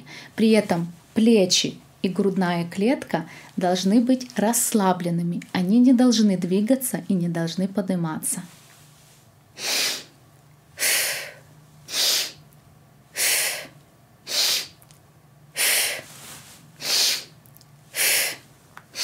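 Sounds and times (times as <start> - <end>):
woman breathing forcefully: 0.0 - 0.4, 9.6 - 12.4, 13.1 - 14.8, 15.5 - 19.0.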